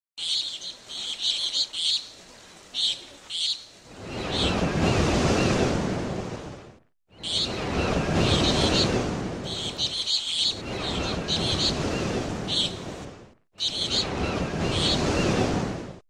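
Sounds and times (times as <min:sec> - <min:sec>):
high chirping bursts: 0:00.2 - 0:04.6, 0:07.2 - 0:12.8, 0:13.6 - 0:15.2.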